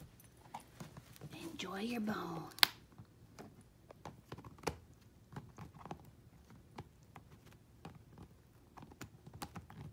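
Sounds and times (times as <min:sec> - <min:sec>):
puppy gnawing a bone: 0:02.6 - 0:09.9.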